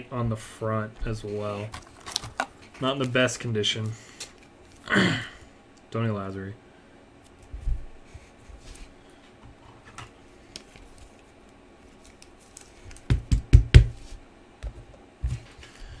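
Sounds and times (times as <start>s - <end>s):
card handling rustles and ticks: 1.0s - 4.8s, 9.8s - 13.2s.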